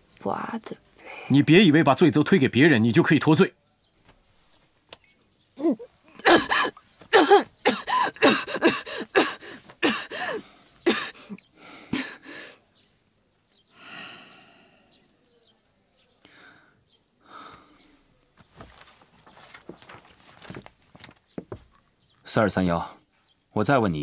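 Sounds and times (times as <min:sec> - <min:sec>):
woman coughing harshly: 0:06.2 - 0:11.3
soft breath: 0:16.2 - 0:18.8.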